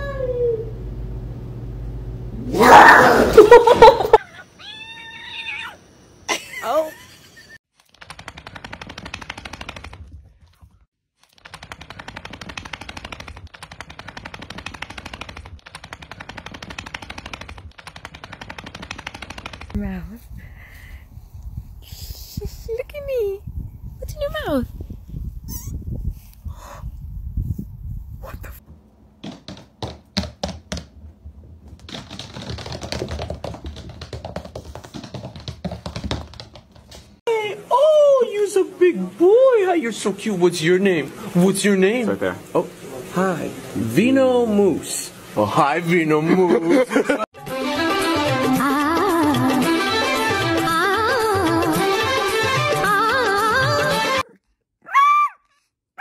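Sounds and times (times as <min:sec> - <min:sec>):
puppy claws clicking on wood floor: 0:11.2 - 0:19.8, 0:31.6 - 0:37.2.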